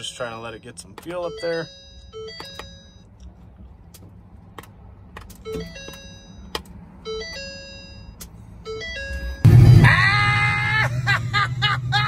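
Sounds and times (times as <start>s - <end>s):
electronic warning chimes: 1.2s - 3.1s.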